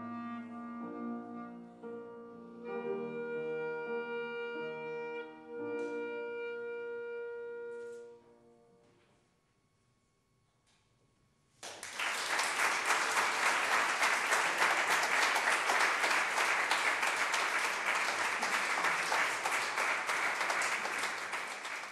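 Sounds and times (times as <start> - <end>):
audience applause: 11.6 - 21.9.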